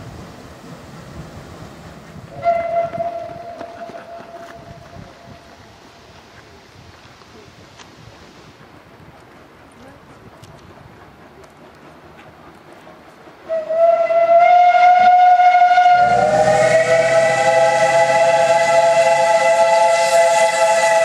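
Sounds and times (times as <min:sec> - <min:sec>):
steam locomotive whistle: 0:02.3 - 0:04.8, 0:13.5 - 0:21.0.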